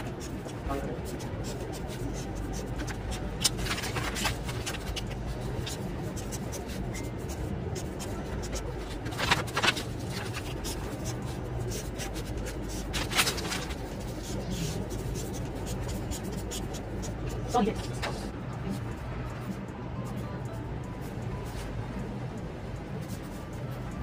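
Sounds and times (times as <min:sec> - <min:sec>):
paper crackling: 0:00.0 - 0:18.0
steady low hum: 0:00.0 - 0:24.0.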